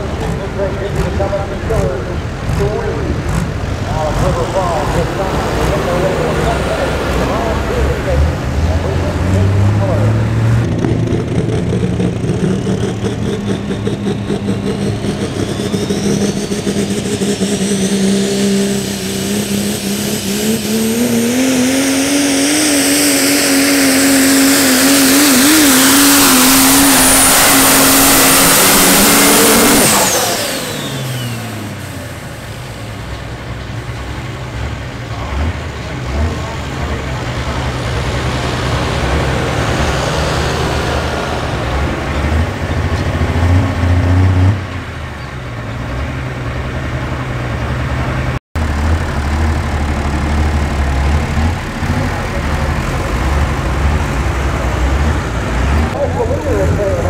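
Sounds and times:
diesel truck engine under load: 0.0s - 57.0s.

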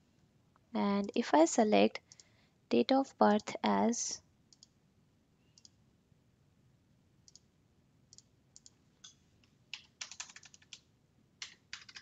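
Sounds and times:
computer mouse clicks: 2.0s - 2.3s, 4.5s - 4.8s, 5.5s - 5.8s, 7.2s - 7.5s, 8.1s - 10.8s
keyboard keystrokes: 8.6s - 10.8s, 11.4s - 12.0s.

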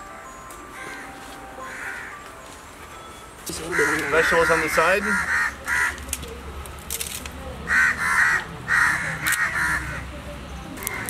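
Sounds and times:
crows cawing: 0.8s - 2.2s, 3.5s - 6.1s, 7.7s - 10.0s, 10.8s - 11.0s.

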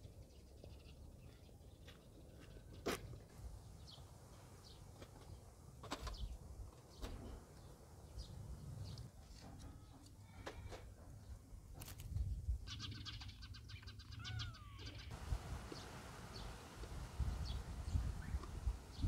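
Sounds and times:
quick high chirping calls: 12.7s - 15.2s.

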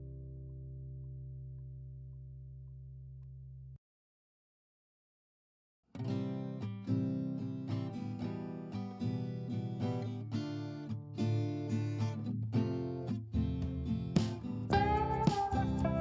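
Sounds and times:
strummed acoustic guitar: 5.9s - 16.0s.

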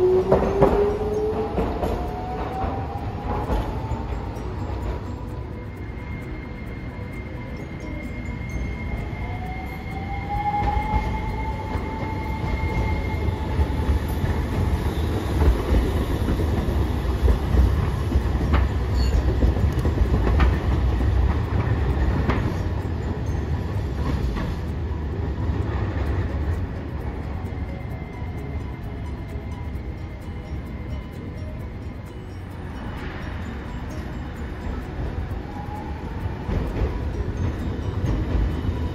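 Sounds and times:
clacks over rail joints: 0.0s - 5.0s, 13.6s - 24.8s
tram motor whine: 0.0s - 38.9s
tram wheels rumbling on track: 0.0s - 38.9s.

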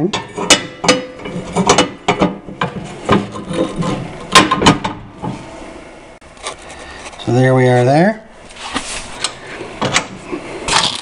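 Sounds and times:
metallic clicks and clunks: 0.1s - 5.4s.

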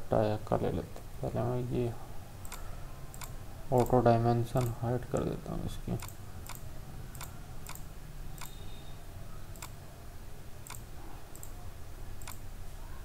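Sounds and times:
computer mouse clicking: 2.4s - 4.0s, 4.6s - 5.3s, 6.0s - 8.6s, 9.5s - 9.8s, 10.6s - 11.6s, 12.2s - 12.4s.

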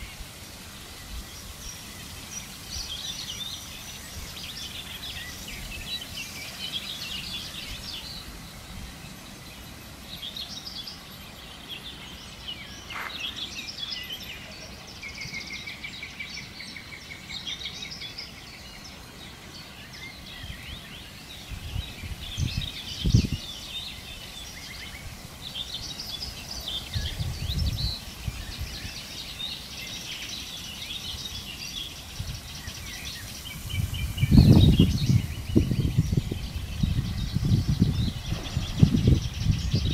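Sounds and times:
birds chirping and trilling: 0.0s - 39.9s
low thumps on microphone: 36.9s - 39.9s.

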